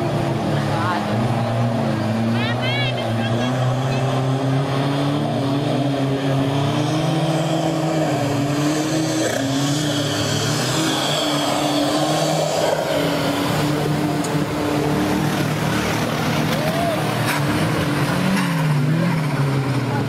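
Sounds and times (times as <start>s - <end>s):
truck engines running hard: 0.0s - 20.0s
water splashing: 9.0s - 19.6s.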